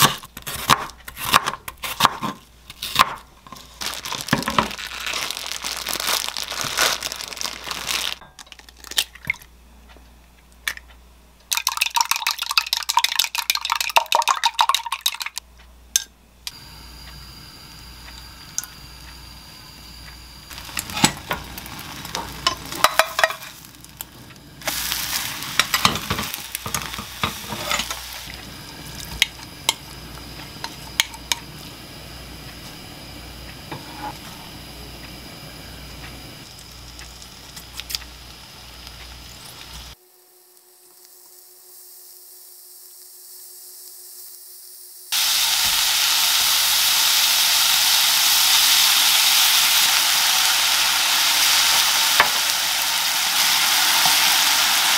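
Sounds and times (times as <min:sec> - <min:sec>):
meat sizzling in a frying pan: 0:20.3 - 0:40.0, 0:45.1 - 0:54.9
utensils scraping against pans: 0:24.7 - 0:28.3, 0:33.7 - 0:34.4.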